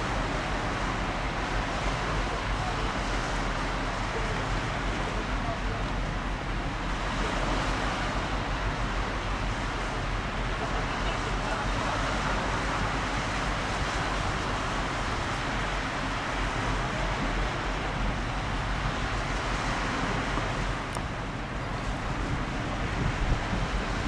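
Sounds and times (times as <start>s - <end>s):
waterfront ambience hiss: 0.0s - 24.0s
wind rumble on microphone: 0.0s - 24.0s.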